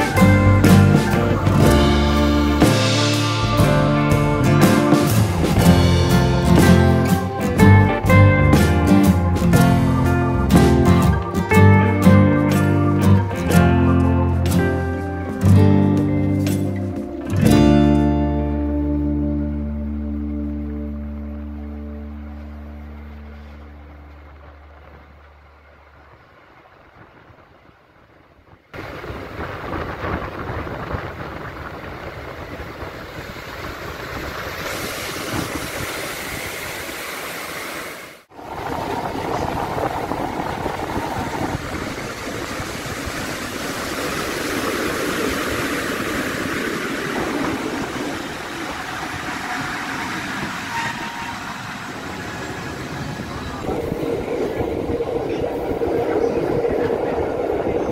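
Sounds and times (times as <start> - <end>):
wind: 0.0 - 57.9
train wheels on rails: 23.4 - 57.9.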